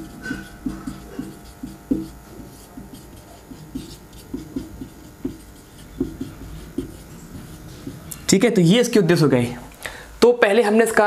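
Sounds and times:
marker writing on whiteboard: 0.0s - 8.3s.

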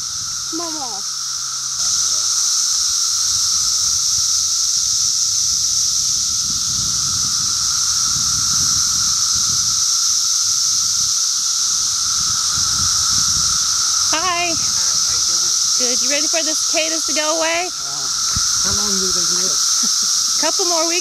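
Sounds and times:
cicadas high hissing drone: 0.0s - 21.0s
low buzz: 10.4s - 21.0s.

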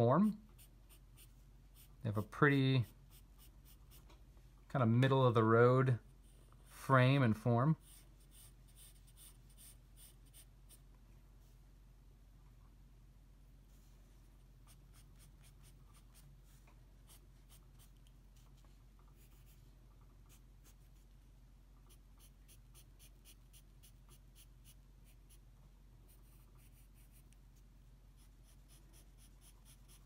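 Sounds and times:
low steady hum: 0.0s - 30.0s
pencil scratching on paper: 0.6s - 4.1s, 7.8s - 10.8s, 14.7s - 16.3s, 17.1s - 18.0s, 21.9s - 25.4s, 26.1s - 27.3s, 28.2s - 30.0s.

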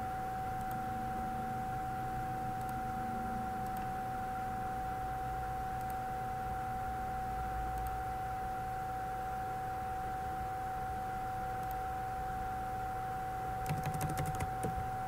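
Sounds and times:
high electronic whine: 0.0s - 7.6s
low hum: 0.0s - 8.6s.

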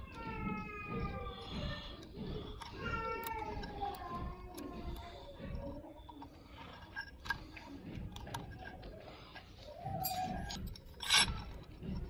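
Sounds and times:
small metal parts clicking: 1.3s - 12.0s
metal parts clattering: 6.0s - 12.0s.

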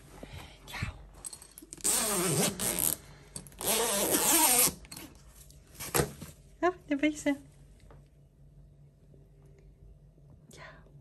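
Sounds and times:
zipper being pulled open: 1.7s - 5.1s.

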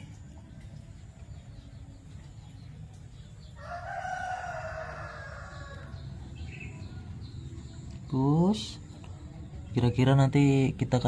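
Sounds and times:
rooster crowing: 3.6s - 6.0s.

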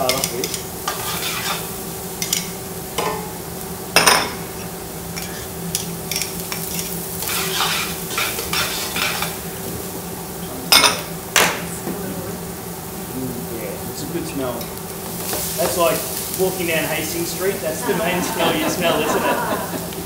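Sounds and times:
food sizzling in a frying pan: 0.0s - 20.0s
utensil scraping a pan: 0.4s - 1.7s, 6.5s - 9.4s.

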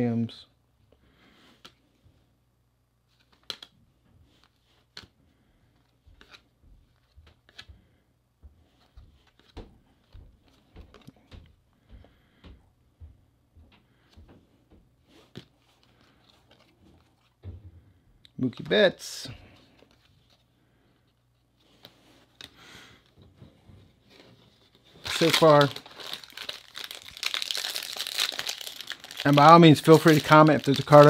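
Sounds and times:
trading cards flipped by hand: 3.1s - 5.2s, 5.8s - 7.8s, 8.7s - 11.2s, 15.1s - 17.3s.

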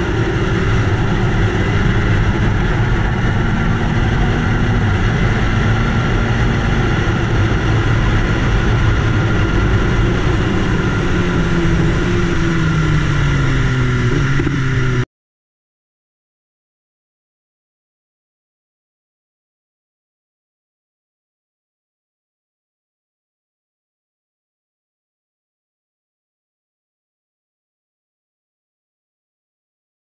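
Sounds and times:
wind rush over microphone: 0.0s - 15.0s
motorcycle engine running: 0.0s - 15.1s.

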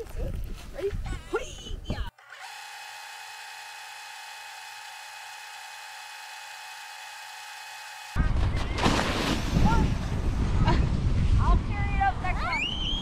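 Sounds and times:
small motor whining: 2.2s - 8.2s.

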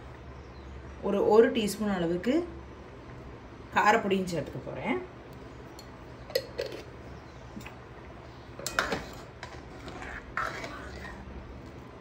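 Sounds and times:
low steady hum: 0.0s - 12.0s
spoon clinking and scraping metal pot: 6.3s - 6.9s, 8.6s - 11.2s.

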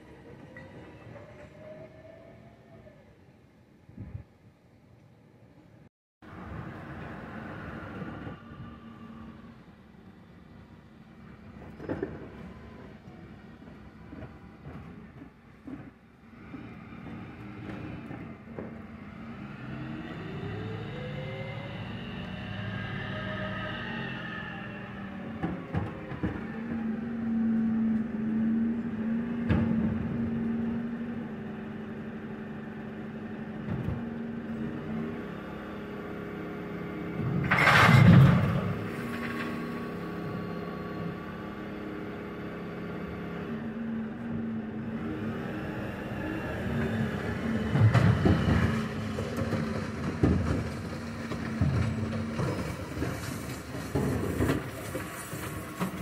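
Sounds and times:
bin crashing: 37.4s - 38.8s
knocks and clatters: 47.7s - 56.0s.

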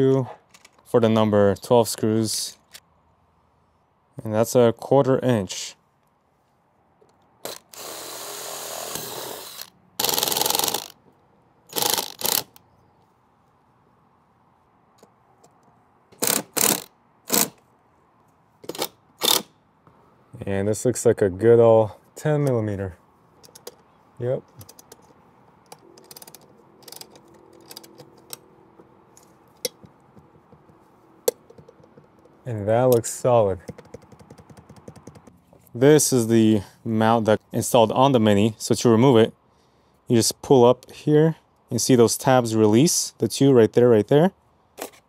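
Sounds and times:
cordless drill boring: 7.4s - 10.9s, 11.7s - 12.5s
impact driver hammering screw: 7.4s - 10.9s, 11.7s - 12.6s, 16.2s - 17.6s
ratchet wrench clicking: 7.4s - 11.0s, 11.7s - 12.6s, 16.2s - 17.6s, 26.0s - 28.0s.

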